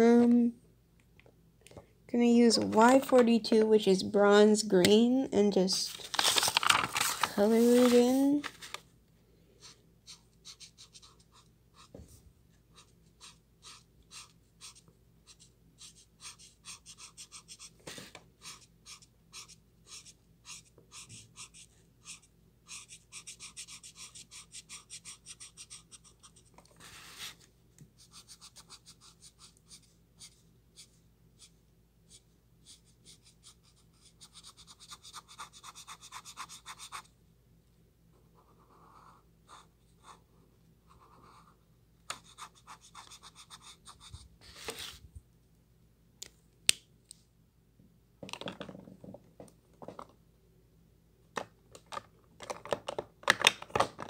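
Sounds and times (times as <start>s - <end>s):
marker rubbing on paper: 10.1s - 11.9s, 12.7s - 27.4s.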